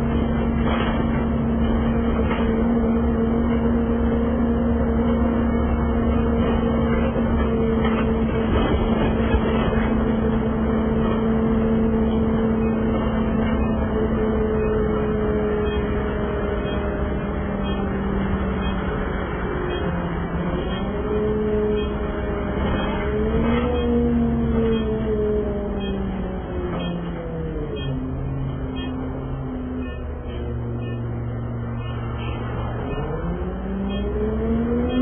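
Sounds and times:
bus engine running: 0:00.0 - 0:35.0
road rumble: 0:00.0 - 0:35.0.

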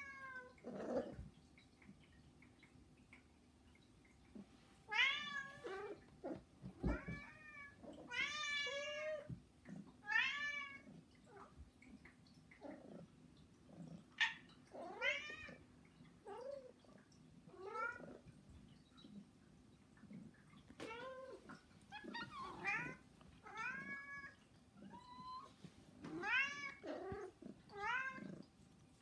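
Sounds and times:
cats meowing: 0:04.9 - 0:09.4, 0:20.8 - 0:28.4.

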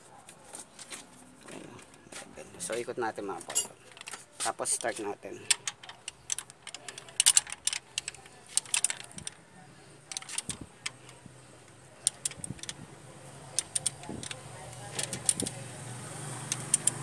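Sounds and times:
wrench clinking on metal: 0:03.4 - 0:09.4, 0:12.0 - 0:12.8, 0:13.5 - 0:15.6.

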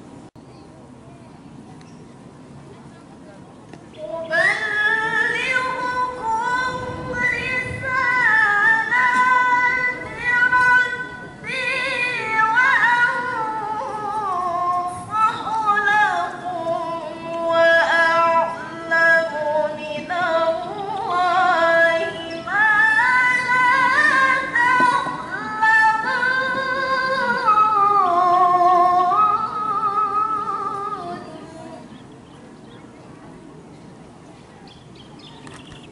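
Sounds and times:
woman reciting melodically: 0:03.9 - 0:32.1.

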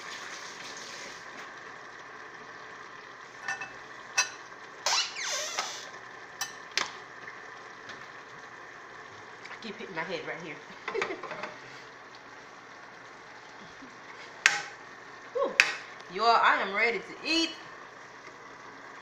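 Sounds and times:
food sizzling in pans: 0:03.2 - 0:16.0
kitchenware clinking: 0:03.4 - 0:04.4, 0:06.4 - 0:06.7
kitchenware scraping: 0:03.4 - 0:04.4.

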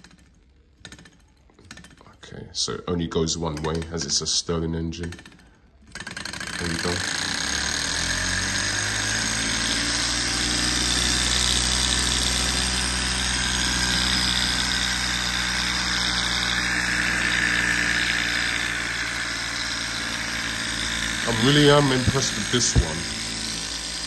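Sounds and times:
small engine running fast: 0:05.9 - 0:24.0.

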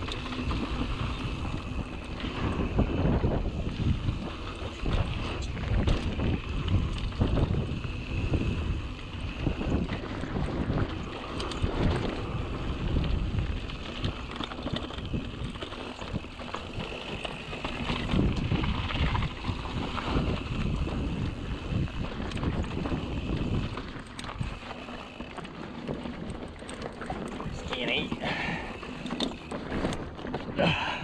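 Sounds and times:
wind rushing over microphone: 0:00.0 - 0:24.7
bike rattling and knocking: 0:00.0 - 0:31.0
tyres crunching on dirt: 0:09.6 - 0:30.6.

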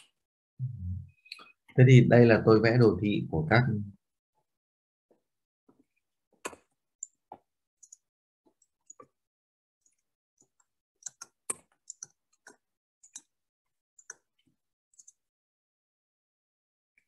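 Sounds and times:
faint clicks and ticks: 0:05.1 - 0:09.2, 0:09.8 - 0:13.4, 0:14.0 - 0:15.2.

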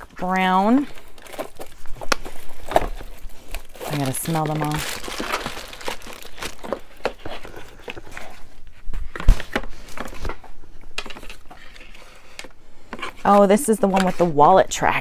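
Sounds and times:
packaging crinkling: 0:00.9 - 0:08.4.

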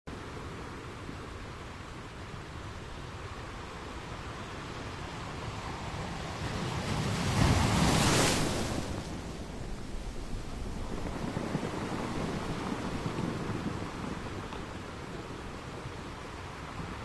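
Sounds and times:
ocean surf: 0:00.1 - 0:17.0
wave breaking: 0:06.1 - 0:17.0.

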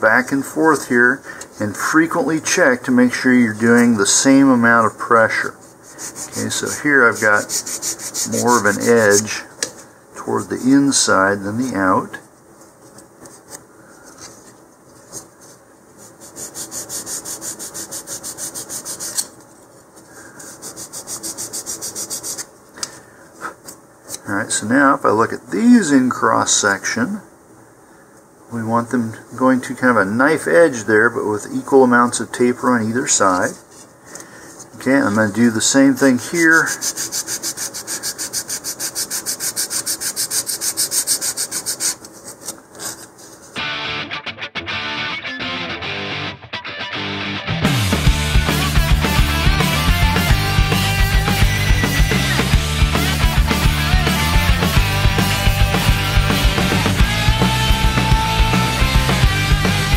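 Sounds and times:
sanding block rubbing wood: 0:05.8 - 0:09.4, 0:16.1 - 0:19.3, 0:20.4 - 0:22.5, 0:35.0 - 0:43.5.

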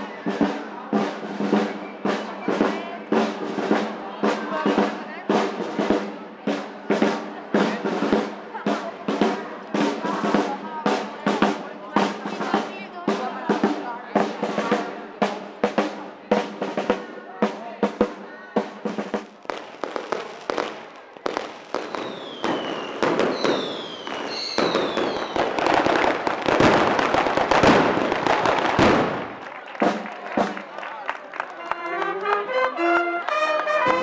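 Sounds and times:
snare drum: 0:00.0 - 0:30.8, 0:33.6 - 0:34.0
marching brass band playing: 0:00.0 - 0:34.0
firecracker bangs: 0:18.0 - 0:30.6
whistling rockets: 0:19.5 - 0:29.4.

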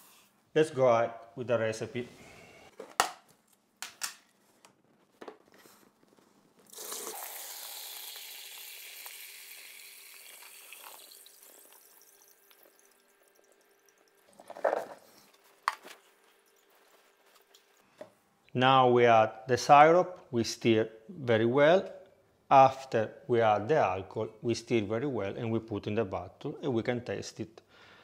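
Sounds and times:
wine pouring and splashing: 0:06.7 - 0:14.4.

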